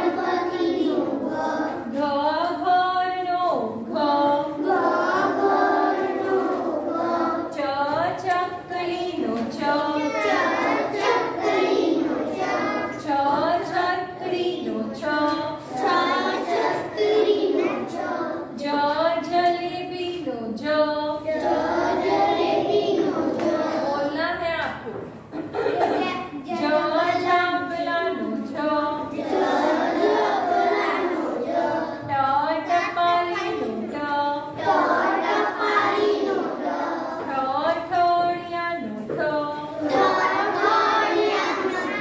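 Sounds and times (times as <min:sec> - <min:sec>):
children chanting together: 0:00.0 - 0:02.0, 0:04.3 - 0:07.7, 0:09.6 - 0:18.6, 0:21.2 - 0:24.2, 0:28.8 - 0:37.5, 0:39.5 - 0:42.0.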